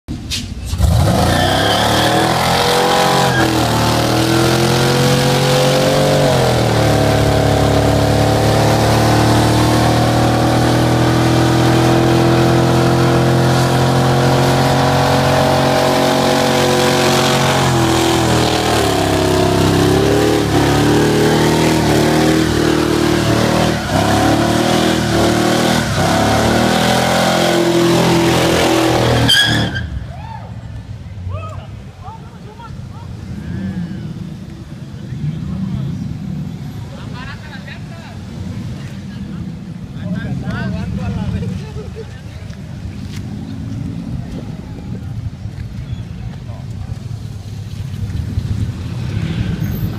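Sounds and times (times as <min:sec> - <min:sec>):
engine at high revs: 0:00.8 - 0:29.7.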